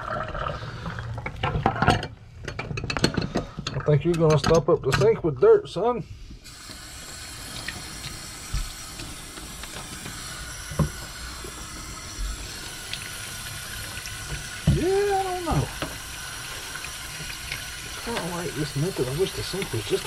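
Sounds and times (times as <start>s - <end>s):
faucet running into steel sink: 6.5s - 20.0s.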